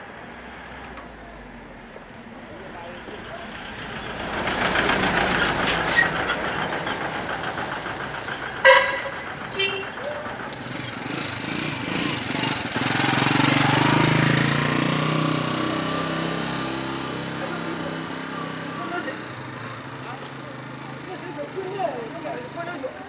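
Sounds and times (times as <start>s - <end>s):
street traffic with motorbikes: 0.0s - 23.0s
small engine running close by: 6.4s - 17.8s
short horn beeps: 8.6s - 10.0s.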